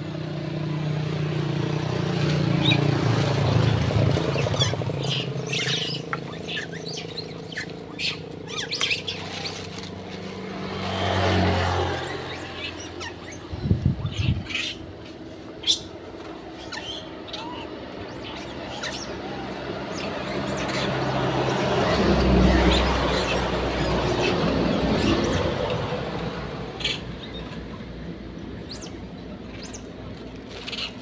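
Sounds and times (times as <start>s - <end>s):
vehicle passing: 0.3s - 31.0s
monkeys squeaking and chirping: 2.5s - 31.0s.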